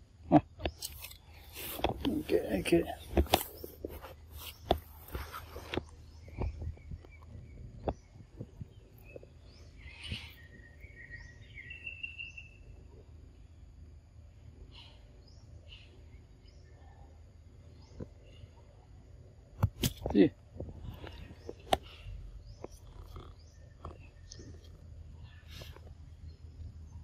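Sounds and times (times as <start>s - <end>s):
birds chirping: 0.0s - 27.0s
low background rumble: 20.4s - 27.0s.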